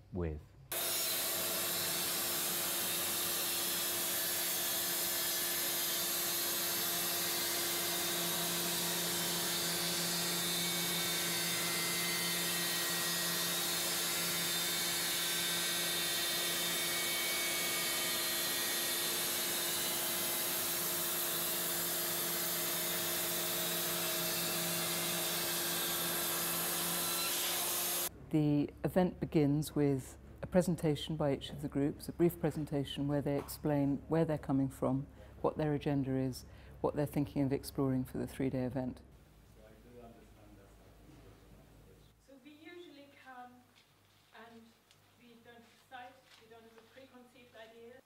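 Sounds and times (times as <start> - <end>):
band saw whining and sawing: 0.7 - 28.1.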